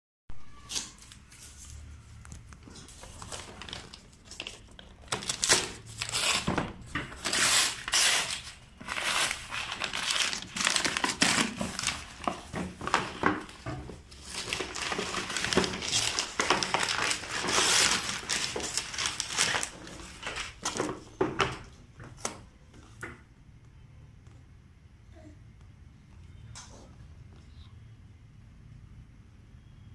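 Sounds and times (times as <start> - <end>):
wrapping paper tearing and crumpling: 2.7 - 20.9.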